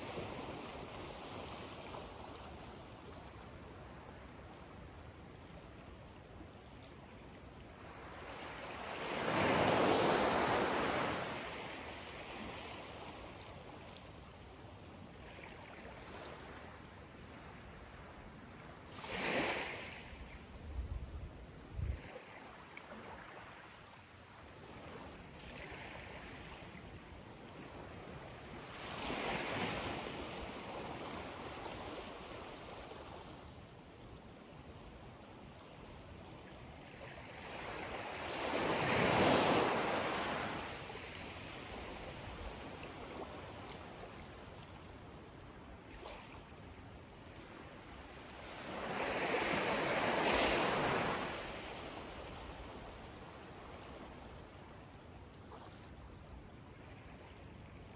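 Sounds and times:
small waves lapping on shore: 0.0s - 57.9s
wind bumps on microphone: 20.6s - 22.1s.

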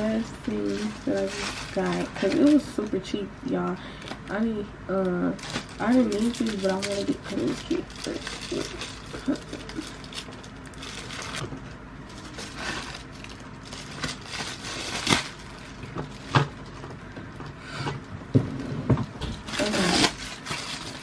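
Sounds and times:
packaging crinkling: 0.0s - 3.0s, 5.0s - 16.9s, 19.2s - 21.0s.

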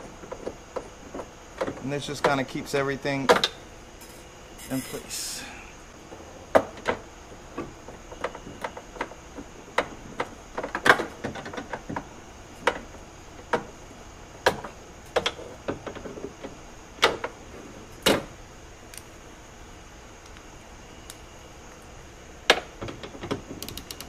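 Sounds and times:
sharp clicks and metallic knocks: 0.0s - 5.0s, 6.5s - 13.7s, 22.5s - 24.0s.

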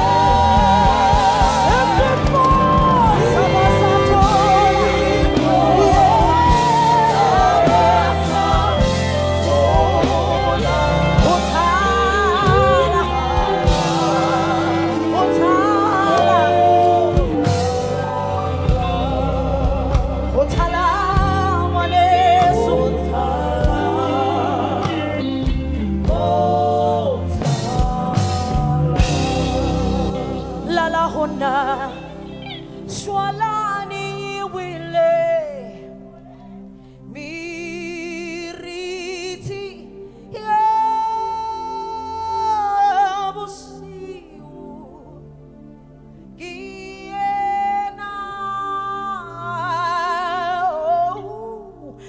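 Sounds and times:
gospel band playing: 0.0s - 35.8s.

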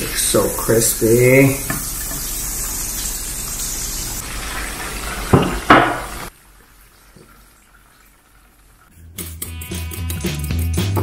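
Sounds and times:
chicken sizzling in a skillet: 0.0s - 9.1s
music: 8.9s - 11.0s.

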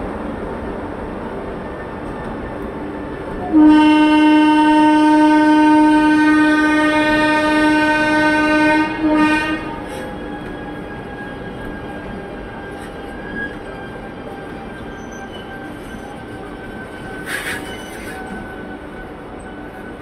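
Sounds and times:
passing freight train rumble: 0.0s - 20.0s
locomotive horn blasts: 3.4s - 10.0s.

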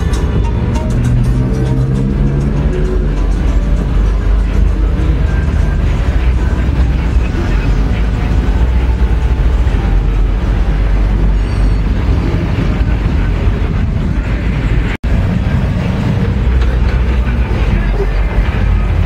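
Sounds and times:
low rumble of vehicles: 0.0s - 19.0s.

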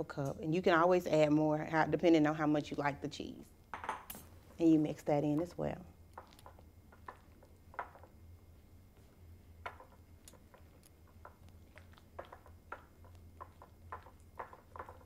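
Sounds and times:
utensil tapping glass bowl: 9.6s - 15.0s.

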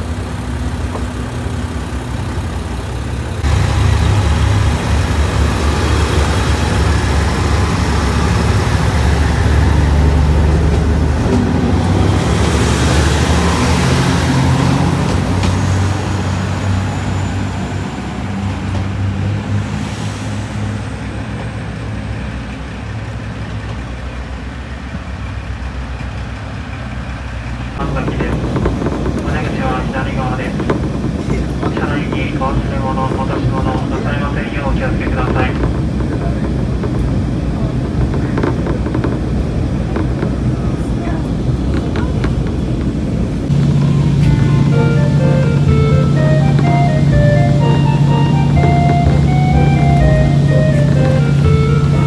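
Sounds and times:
diesel railcar engines: 0.0s - 52.0s.

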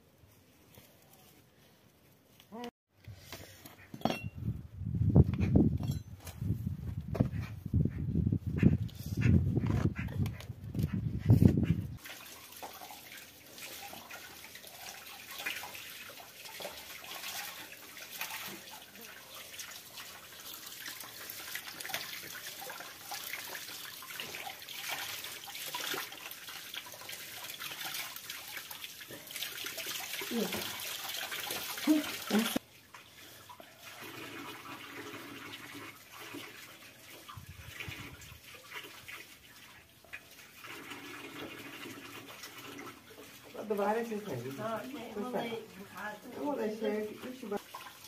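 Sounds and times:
tap water splashing into bucket: 12.0s - 44.6s, 47.2s - 48.0s.

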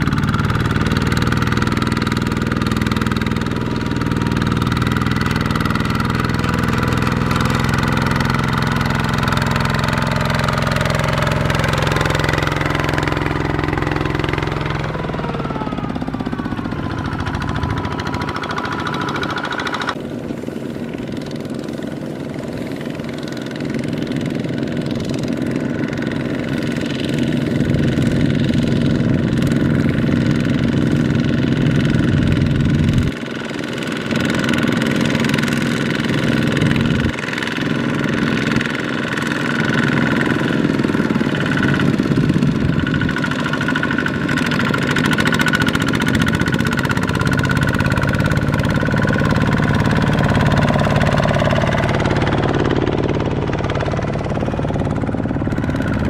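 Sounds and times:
diesel engines running: 0.0s - 56.0s.

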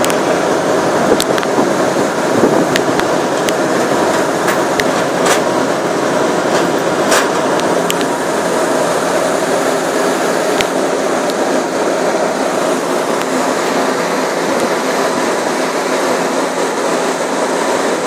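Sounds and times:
ferry engine rumble: 0.0s - 18.0s
rushing water: 0.0s - 18.0s.

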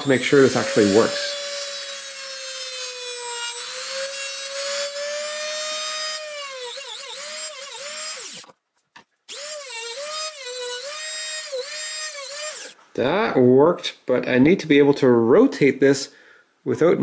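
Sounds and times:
rotary tool cutting metal whine: 0.0s - 8.5s, 9.3s - 12.8s.

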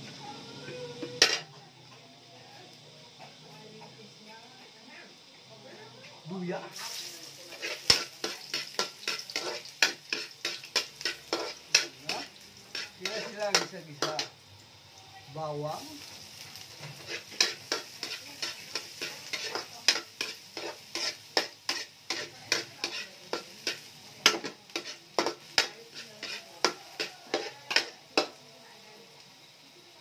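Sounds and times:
oil sizzling: 0.0s - 30.0s
metal spatula scraping a wok: 6.8s - 14.3s, 16.5s - 28.4s.

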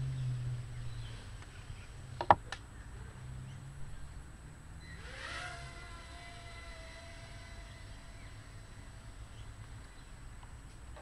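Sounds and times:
low hum: 0.0s - 11.0s
small drone motors whining: 3.4s - 11.0s.

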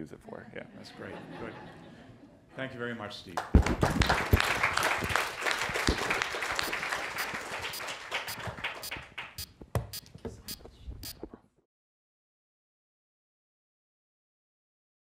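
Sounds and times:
audience applauding: 3.4s - 9.5s.

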